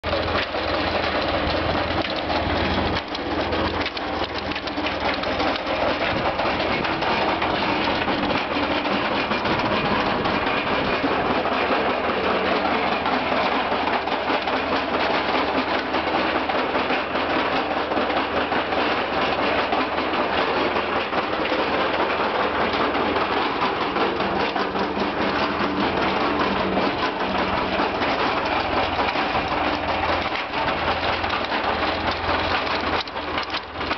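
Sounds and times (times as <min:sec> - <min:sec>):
fast ticking clatter of rotor: 0:00.0 - 0:33.9
tractor engine at fast idle: 0:00.0 - 0:33.9.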